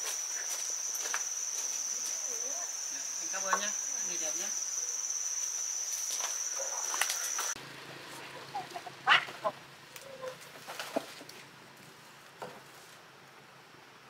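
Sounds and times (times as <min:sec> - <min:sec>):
insects chirring: 0:00.0 - 0:11.1.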